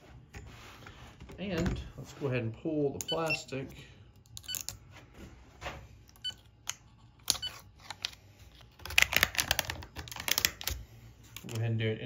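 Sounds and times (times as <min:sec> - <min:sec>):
plastic film crinkling: 0:07.5 - 0:10.8.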